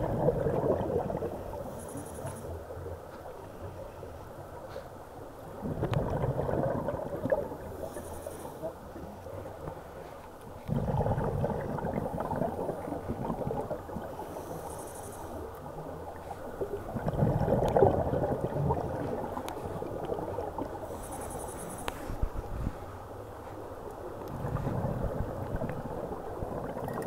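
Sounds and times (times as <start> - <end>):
rush of bubbles underwater: 0.0 - 1.7, 5.4 - 8.0, 10.6 - 14.4, 16.0 - 20.9, 24.0 - 27.0
low water rumble: 0.0 - 27.0.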